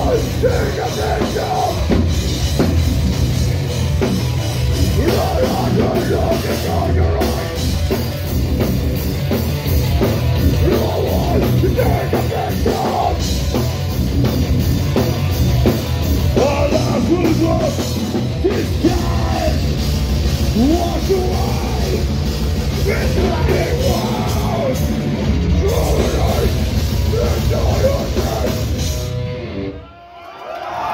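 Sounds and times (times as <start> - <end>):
screamed lead vocal: 0.0 - 2.0, 4.8 - 7.6, 10.4 - 13.4, 16.4 - 19.7, 20.6 - 22.1, 22.8 - 29.0
bass guitar: 0.0 - 29.8
distorted guitars: 0.0 - 29.9
drums: 0.0 - 30.9.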